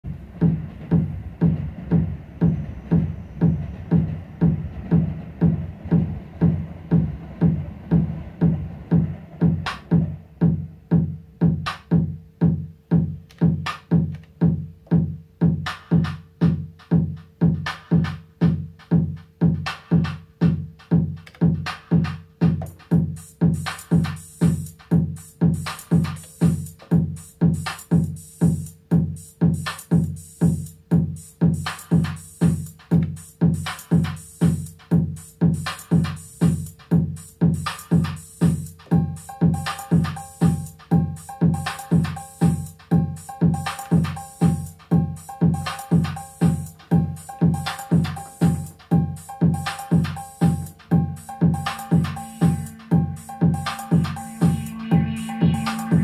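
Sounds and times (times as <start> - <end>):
drum machine kick drum: 0.0 - 56.0
high cymbal pattern: 0.1 - 11.8, 22.6 - 56.0
sharp high hits: 38.9 - 56.0
held mid-pitched tone: 50.8 - 56.0.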